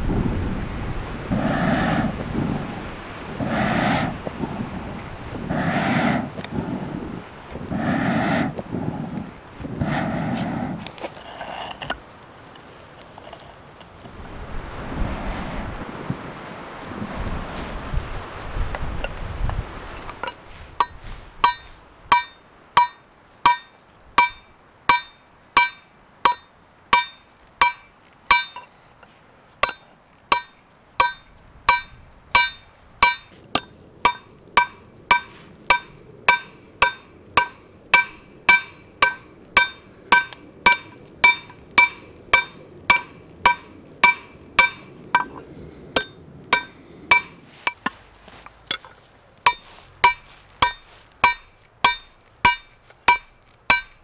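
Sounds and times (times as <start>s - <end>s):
hammer striking hot steel on anvil: 20.2s - 28.7s, 29.6s - 48.0s, 49.5s - 54.0s.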